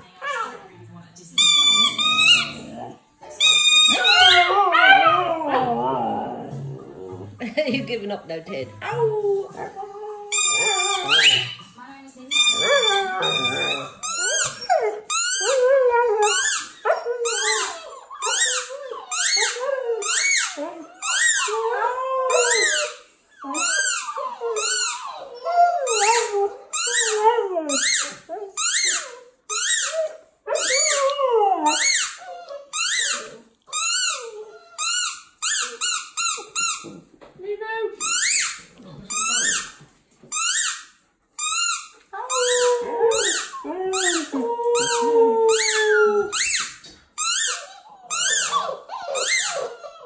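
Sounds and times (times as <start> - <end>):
squeaky toy squeaking: 1.4 - 5.2, 10.3 - 11.7, 12.3 - 37.0, 38.0 - 50.0
puppy howling and whining: 1.5 - 7.2, 8.8 - 11.6, 12.4 - 29.3, 29.9 - 35.8, 42.1 - 46.8, 47.5 - 50.0.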